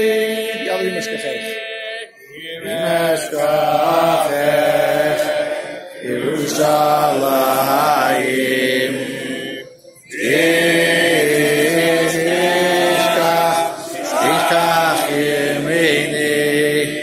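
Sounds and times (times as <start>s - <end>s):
men singing together: 0.0s - 17.0s.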